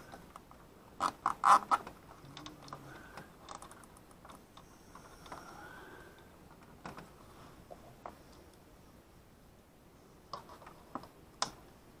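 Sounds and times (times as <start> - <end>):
wires and connectors clicking: 0.1 - 5.5, 10.3 - 11.7.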